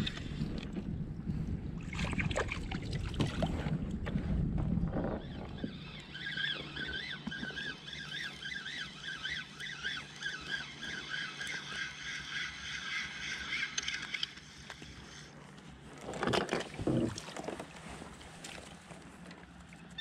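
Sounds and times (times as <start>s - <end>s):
fishing reel gears whirring: 5.0s - 15.4s
water sloshing: 15.9s - 20.0s.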